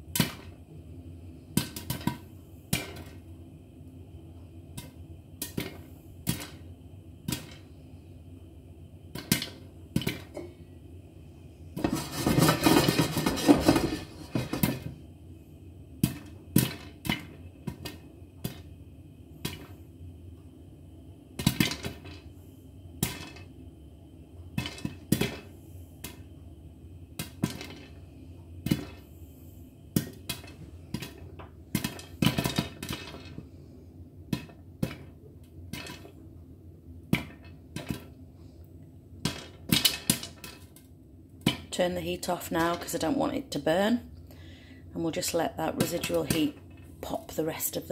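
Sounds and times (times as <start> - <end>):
popcorn popping in covered pan: 0.0 - 0.6, 1.4 - 3.3, 4.6 - 7.8, 9.1 - 10.6, 11.8 - 15.0, 15.9 - 19.9, 21.3 - 22.3, 22.9 - 23.6, 24.4 - 26.3, 27.0 - 29.1, 29.9 - 33.5, 34.2 - 36.3, 36.9 - 38.2, 39.1 - 43.6, 45.0 - 47.9.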